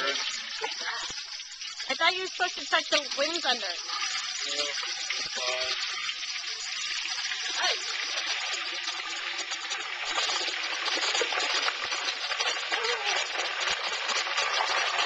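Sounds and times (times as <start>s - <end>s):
hot oil sizzling and crackling: 0.0s - 15.0s.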